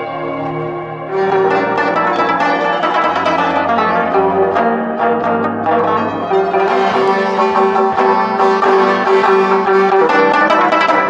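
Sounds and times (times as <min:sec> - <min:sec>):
plucked lute notes: 0:00.0 - 0:11.0.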